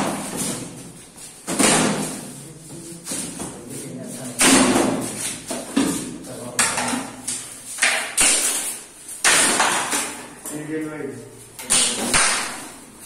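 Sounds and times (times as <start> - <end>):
plastic panels knocking and clattering: 4.4 - 10.5.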